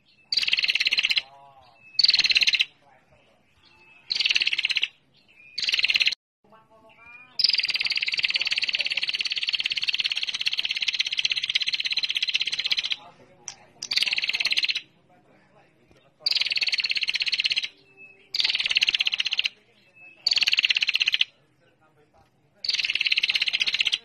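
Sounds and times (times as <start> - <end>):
bird rattling trill: 0.3 - 1.2, 2.0 - 2.7, 4.1 - 4.9, 5.6 - 6.2, 7.4 - 13.0, 13.8 - 14.8, 16.2 - 17.7, 18.3 - 19.6, 20.2 - 21.3, 22.6 - 24.0.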